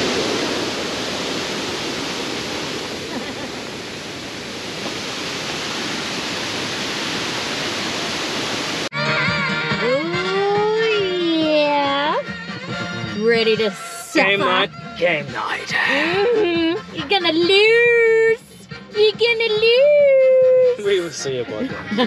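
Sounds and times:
small waterfall rushing: 0:00.0 - 0:08.9
music: 0:08.9 - 0:22.0.

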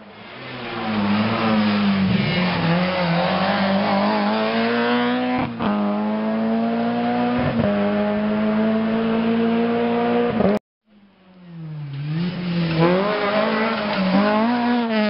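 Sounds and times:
rally car accelerating past: 0:11.5 - 0:15.0.

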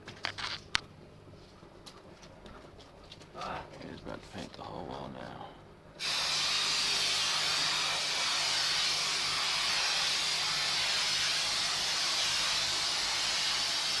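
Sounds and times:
spray foam gun hissing: 0:06.0 - 0:14.0.

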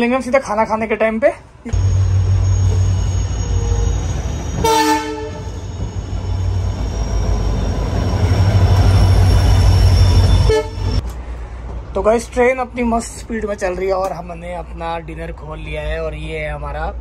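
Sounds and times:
train rumbling on rails: 0:01.6 - 0:17.0
train horn blast: 0:04.6 - 0:05.7, 0:10.1 - 0:11.0.

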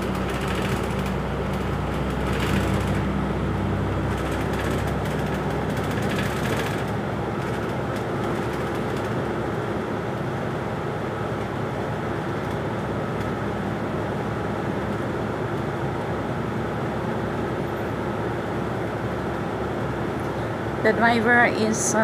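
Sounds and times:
bus engine and road noise: 0:00.0 - 0:22.0
faint steady hum: 0:09.3 - 0:22.0.

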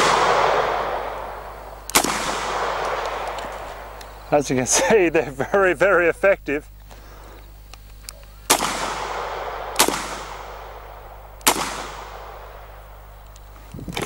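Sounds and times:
rifle shots with echo: 0:00.0 - 0:04.3, 0:08.4 - 0:13.2.

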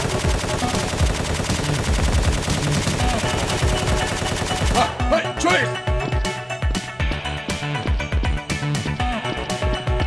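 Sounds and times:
rapid automatic gunfire: 0:00.0 - 0:05.0
music: 0:00.0 - 0:10.0.

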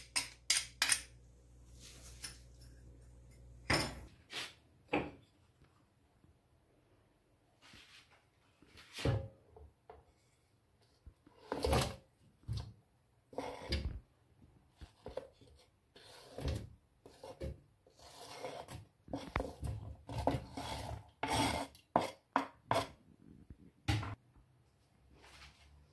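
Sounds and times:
wooden spoon scraping cutting board: 0:11.3 - 0:12.0, 0:13.3 - 0:13.9, 0:14.8 - 0:23.0.

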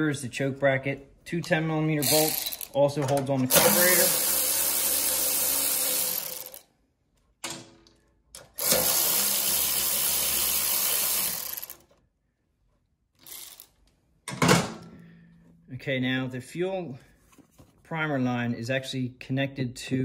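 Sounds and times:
cordless power driver spinning: 0:02.0 - 0:02.9, 0:03.5 - 0:06.6, 0:08.5 - 0:12.0, 0:13.2 - 0:13.8
metal parts clattering: 0:02.0 - 0:04.1.

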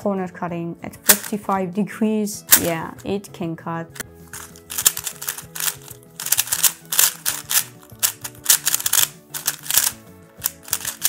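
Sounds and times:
background music: 0:00.0 - 0:11.0
plastic speed cube turning clatter: 0:04.4 - 0:11.0.

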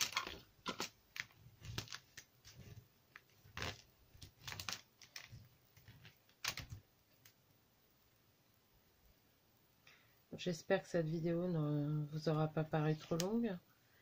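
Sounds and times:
paper rustling: 0:00.0 - 0:07.4.

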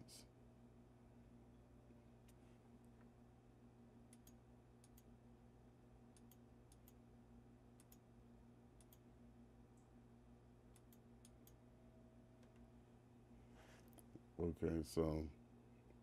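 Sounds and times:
faint electrical hum: 0:00.0 - 0:16.0
computer mouse clicks: 0:04.1 - 0:05.1, 0:06.1 - 0:07.0, 0:07.8 - 0:08.0, 0:08.8 - 0:09.1, 0:10.7 - 0:11.6.

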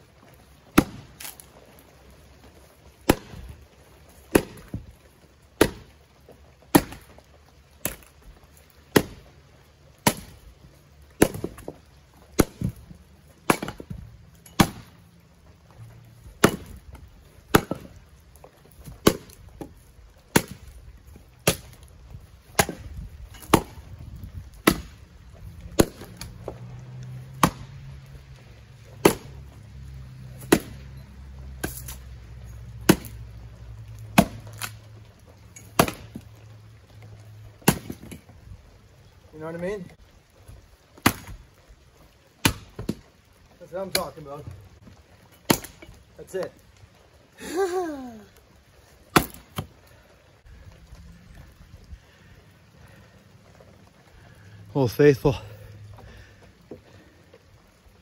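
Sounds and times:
axe chopping wood: 0:00.7 - 0:01.5, 0:03.0 - 0:03.5, 0:04.2 - 0:04.8, 0:05.6 - 0:06.0, 0:06.7 - 0:07.2, 0:07.8 - 0:08.1, 0:08.9 - 0:09.3, 0:10.0 - 0:10.4, 0:11.1 - 0:12.8, 0:13.4 - 0:15.0, 0:16.4 - 0:18.0, 0:18.8 - 0:19.7, 0:20.3 - 0:20.8, 0:21.4 - 0:25.0, 0:25.6 - 0:26.6, 0:27.4 - 0:27.8, 0:28.9 - 0:29.5, 0:30.4 - 0:31.0, 0:31.6 - 0:32.0, 0:32.8 - 0:33.2, 0:34.1 - 0:34.8, 0:35.6 - 0:36.3, 0:37.6 - 0:38.2, 0:41.0 - 0:41.4, 0:42.4 - 0:43.1, 0:43.8 - 0:44.2, 0:45.4 - 0:46.5, 0:49.1 - 0:49.7.

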